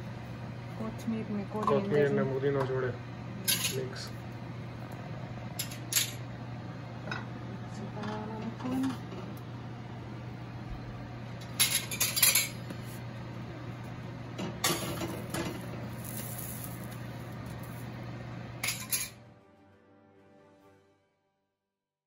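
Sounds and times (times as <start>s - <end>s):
steady low hum: 0.0s - 19.6s
metal cookware clinking: 18.6s - 19.2s.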